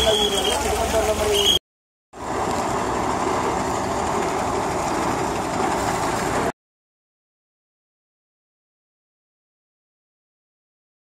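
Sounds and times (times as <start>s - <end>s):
vehicle rumble: 2.2s - 6.5s.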